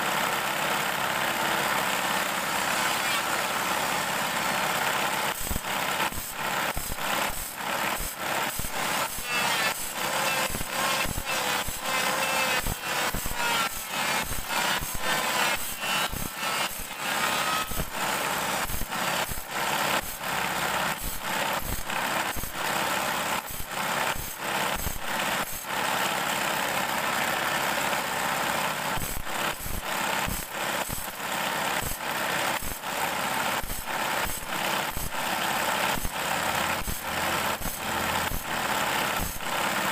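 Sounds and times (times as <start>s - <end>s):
motor running: 0.0s - 39.9s
short grinding strokes: 5.4s - 22.8s.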